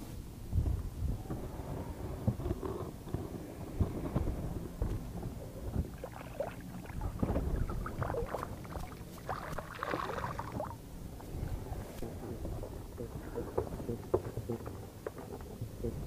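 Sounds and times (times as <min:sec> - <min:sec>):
low rumble of water and wind: 0:00.0 - 0:16.0.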